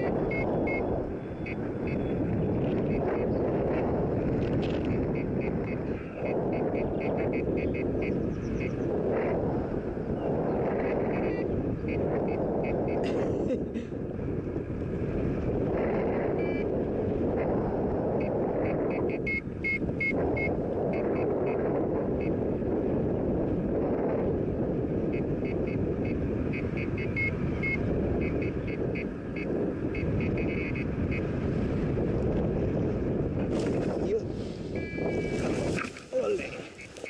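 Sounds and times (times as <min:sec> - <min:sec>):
variometer high beeps: 0:00.0 - 0:02.2, 0:04.9 - 0:08.7, 0:11.1 - 0:13.0, 0:16.3 - 0:16.7, 0:18.2 - 0:21.6, 0:25.1 - 0:31.2, 0:34.8 - 0:35.5
wind rushing over microphone: 0:00.0 - 0:37.0.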